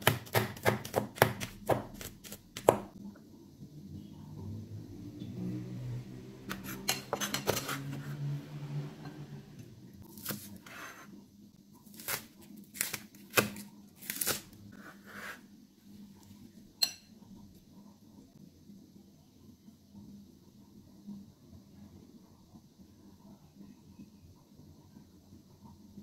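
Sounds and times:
cleaver chopping on cutting board: 0:00.0 - 0:02.9.

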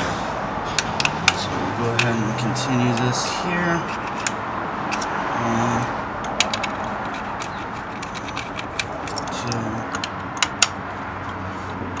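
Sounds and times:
socket ratchet clicking: 0:06.2 - 0:10.8.

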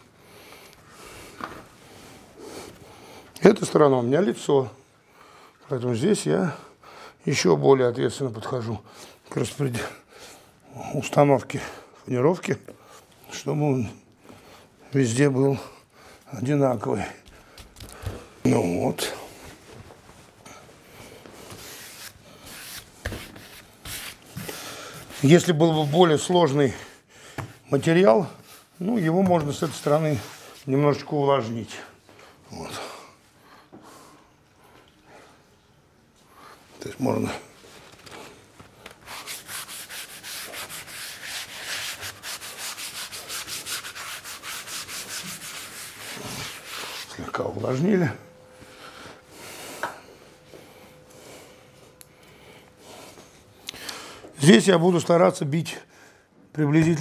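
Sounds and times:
hand rubbing veneer sheet: 0:21.3 - 0:26.3, 0:28.3 - 0:30.7, 0:39.0 - 0:47.6
sponge scrubbing wood: 0:39.1 - 0:47.2.

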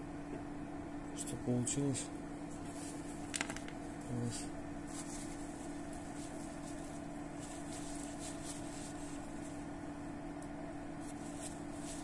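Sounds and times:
low electrical hum: 0:00.0 - 0:12.0
paper towel rustling: 0:04.8 - 0:09.8, 0:11.0 - 0:12.0.

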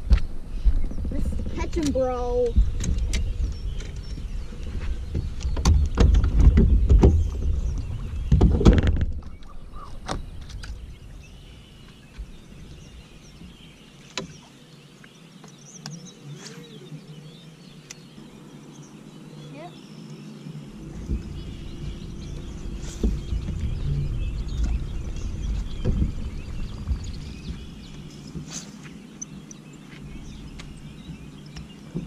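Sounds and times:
faint bird calls: 0:09.2 - 0:32.0
boat hull low rumble: 0:16.3 - 0:32.0
knocks and clanks: 0:20.9 - 0:28.5.

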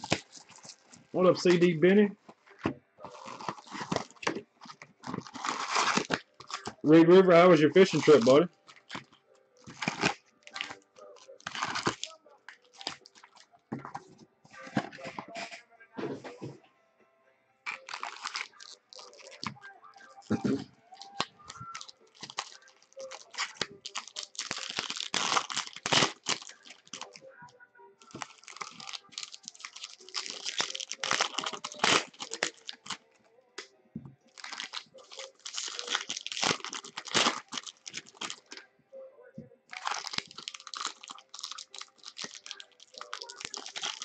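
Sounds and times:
foil wrappers crinkling and tearing: 0:00.0 - 0:13.5, 0:17.7 - 0:27.2, 0:28.0 - 0:33.0, 0:34.3 - 0:38.6, 0:39.7 - 0:44.0.

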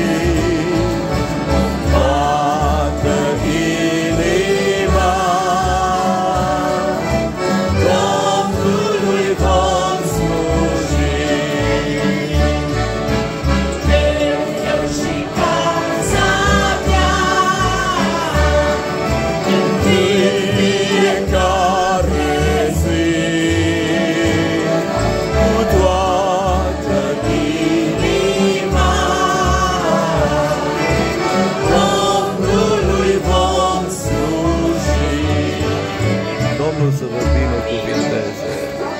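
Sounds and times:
group singing a hymn: 0:00.0 - 0:36.5
accordions: 0:00.0 - 0:38.9
acoustic guitars: 0:00.0 - 0:38.9
woman singing with vibrato: 0:13.9 - 0:19.0, 0:27.0 - 0:30.8.

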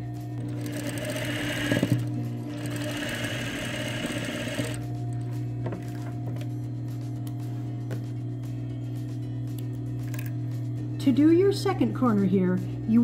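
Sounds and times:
sewing machine stitching: 0:00.4 - 0:04.8.

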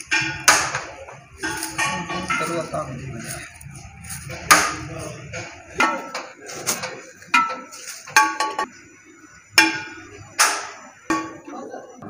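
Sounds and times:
metal scoop clinking on metal pot: 0:01.4 - 0:08.7.

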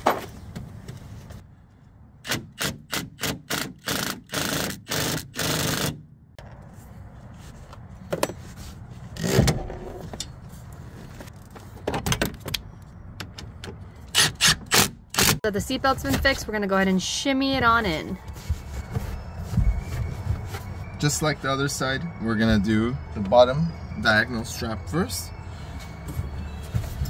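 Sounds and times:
power tool turning bolt bursts: 0:02.2 - 0:06.0.

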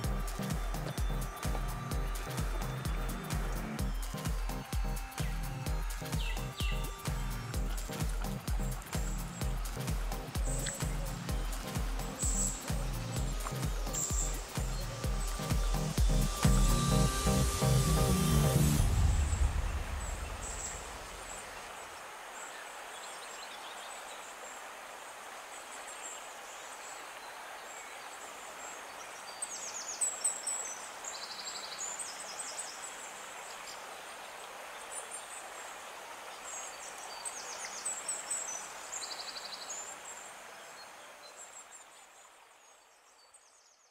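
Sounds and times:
birds chirping and trilling: 0:00.0 - 0:21.8
steady outdoor hiss: 0:00.0 - 0:43.9.

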